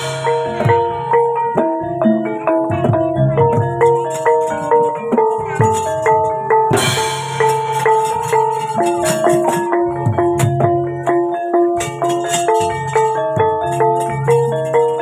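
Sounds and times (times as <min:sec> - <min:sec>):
drum strokes: 0:00.0 - 0:15.0
metallophones ringing notes: 0:00.0 - 0:15.0.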